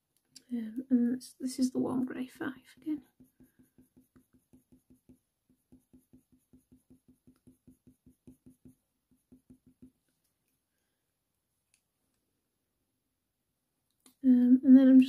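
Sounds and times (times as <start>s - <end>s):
colour pencil strokes on paper: 1.5s - 10.4s.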